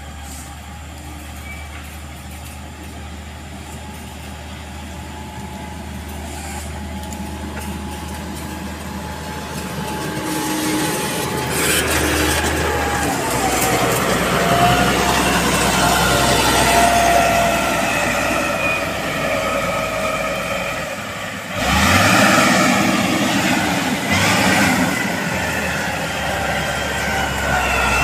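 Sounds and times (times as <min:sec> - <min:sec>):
diesel engine running: 0:00.0 - 0:28.0
blade scraping soil: 0:06.1 - 0:18.6.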